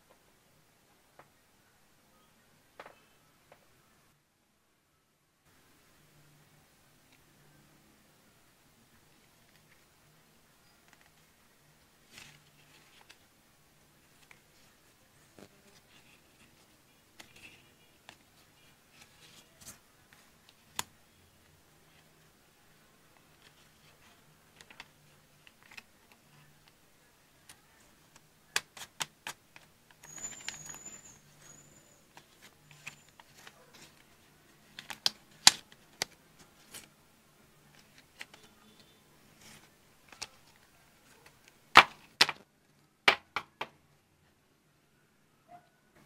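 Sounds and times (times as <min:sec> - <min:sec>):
packaging clicks and taps: 0:32.1 - 0:36.9, 0:37.7 - 0:42.4.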